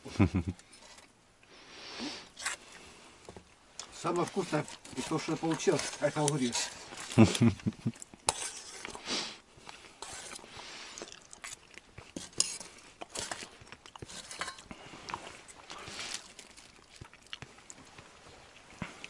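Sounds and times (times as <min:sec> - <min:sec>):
chewing: 0:02.2 - 0:19.0
spoon scraping steel bowl: 0:04.0 - 0:07.2, 0:08.2 - 0:09.0, 0:10.0 - 0:14.7.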